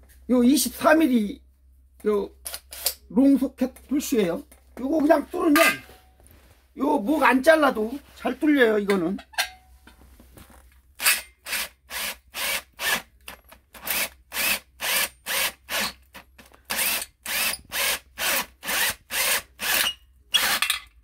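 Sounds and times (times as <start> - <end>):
drill hole saw cutting metal: 11.0 - 13.1, 13.8 - 16.0, 16.7 - 20.8.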